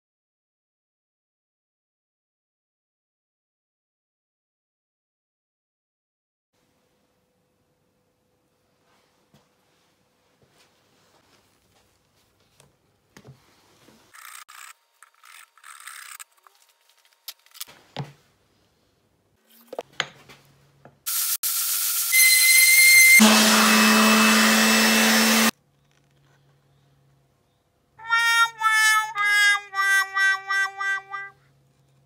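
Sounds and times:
power tool running: 21.1s - 25.5s.

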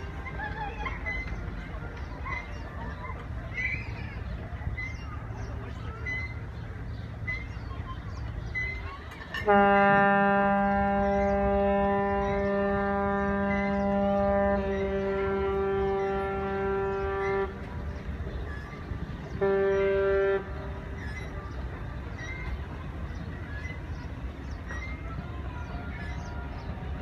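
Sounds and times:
ship's horn blasts: 9.4s - 21.4s.

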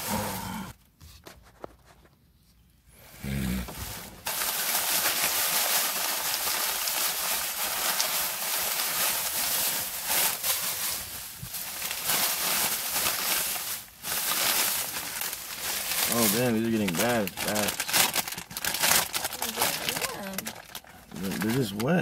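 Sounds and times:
plastic bag rustling: 3.7s - 22.0s.

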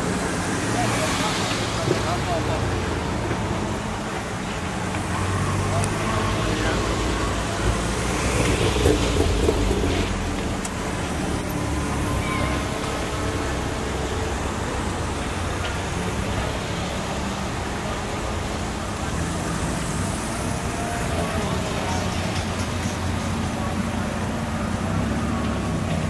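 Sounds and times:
traffic idling rumble: 0.0s - 26.0s.

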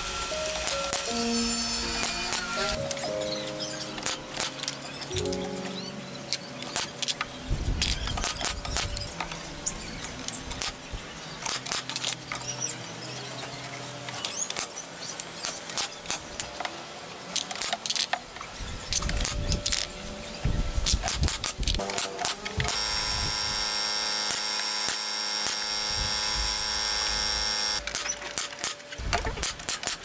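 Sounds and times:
cordless drill driving screws: 0.0s - 2.8s, 22.0s - 28.8s.

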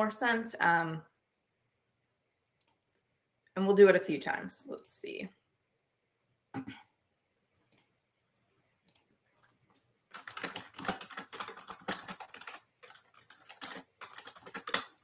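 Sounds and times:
computer keyboard typing: 10.1s - 15.0s.

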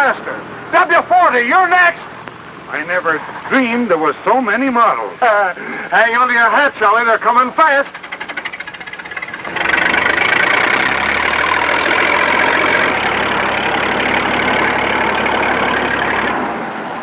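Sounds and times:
tractor engine running: 0.0s - 17.0s.

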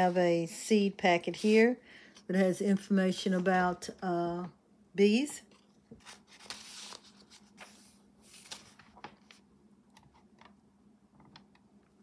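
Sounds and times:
paper rustling and scraping: 5.5s - 9.4s.

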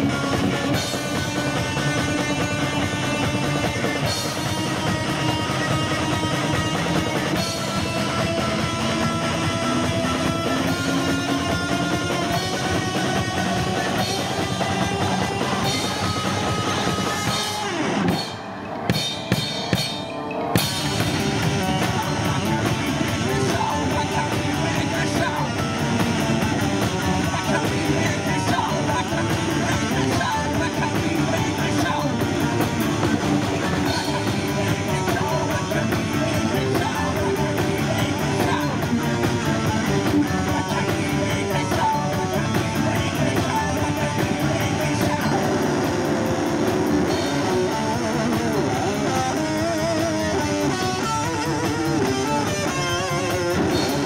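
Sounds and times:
live rock band playing: 0.0s - 54.0s
drum hits: 11.9s - 29.4s.

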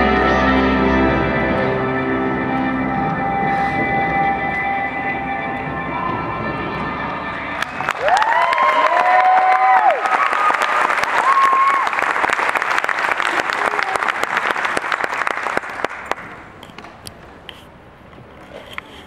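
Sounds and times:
audience applauding: 7.5s - 16.5s.

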